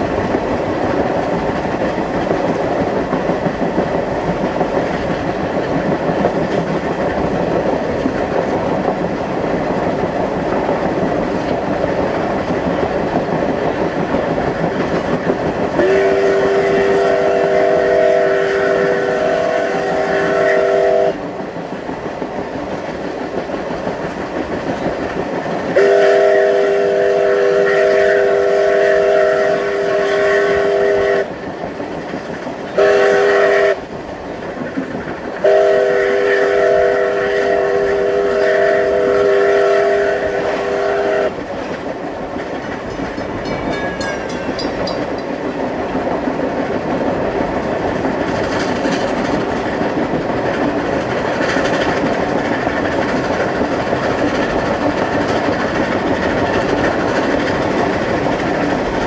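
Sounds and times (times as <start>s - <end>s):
train rumbling and clattering: 0.0s - 59.0s
steam whistle blasts: 15.8s - 21.2s, 25.8s - 31.3s, 32.8s - 33.8s, 35.4s - 41.4s.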